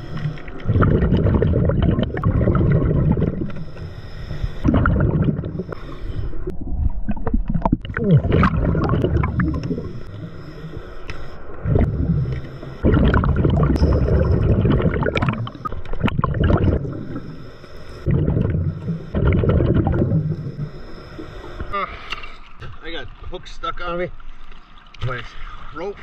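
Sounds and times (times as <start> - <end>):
exhaled bubbles gurgling underwater: 0.0 - 21.7
regulator breathing: 3.4 - 4.7, 5.4 - 6.6, 9.2 - 13.0, 16.8 - 19.4, 20.1 - 22.4.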